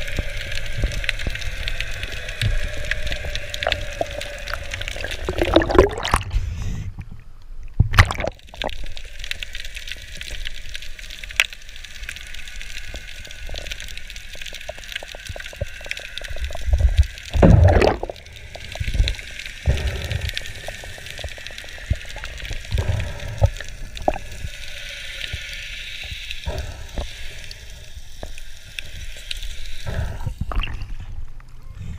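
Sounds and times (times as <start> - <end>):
steady hiss: 0.0 - 5.6, 8.6 - 17.4, 18.0 - 31.9
muffled underwater sloshing: 2.2 - 6.9, 14.5 - 24.4.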